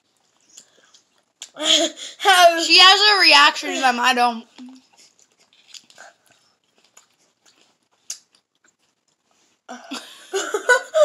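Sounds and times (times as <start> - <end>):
chewing grapes: 0.0 - 1.6, 4.5 - 9.7.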